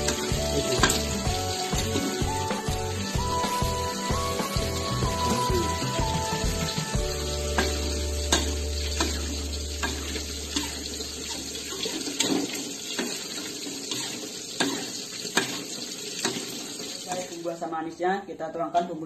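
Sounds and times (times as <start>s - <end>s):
sauce bubbling and sizzling: 0.0s - 17.6s
spatula scraping a wok: 7.2s - 16.5s.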